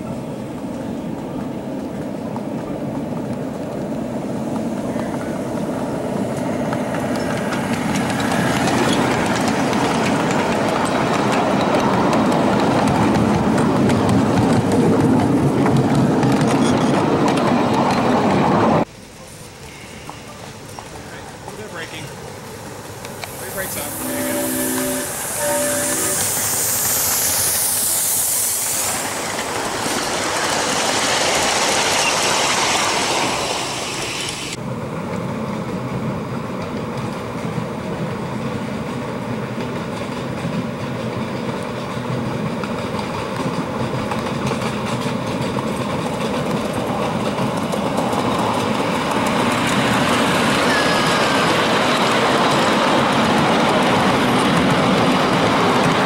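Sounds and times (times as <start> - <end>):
model train running on track: 0.0 - 56.0
hiss: 22.1 - 34.6.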